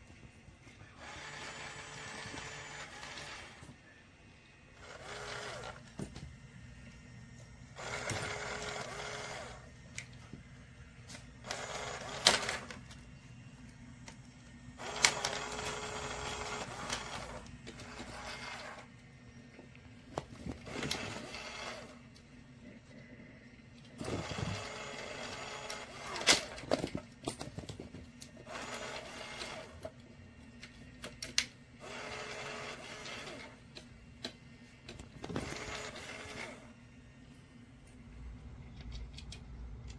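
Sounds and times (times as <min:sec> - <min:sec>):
small electric motor whirring: 0:01.0 - 0:03.7, 0:04.8 - 0:05.9, 0:07.8 - 0:09.7, 0:14.8 - 0:18.9, 0:20.6 - 0:22.0.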